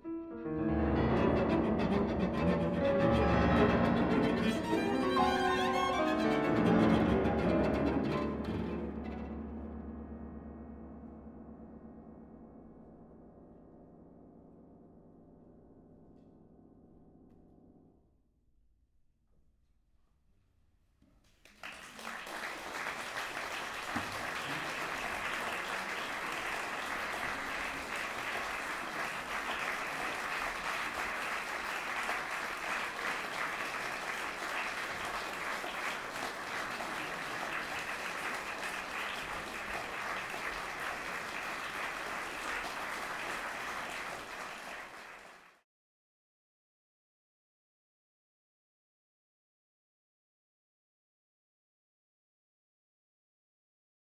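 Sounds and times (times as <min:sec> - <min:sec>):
audience applauding: 0:21.3 - 0:45.6.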